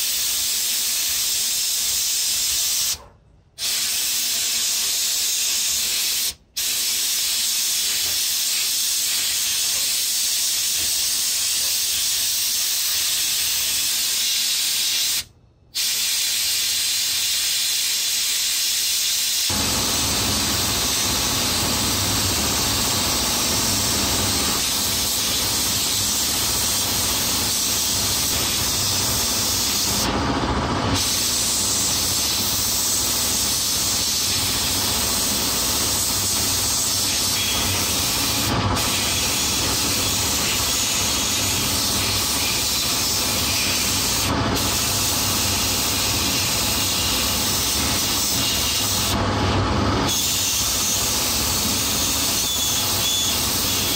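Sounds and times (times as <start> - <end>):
abrasive blast gun hissing: 3.6 - 30.1, 31.0 - 49.2.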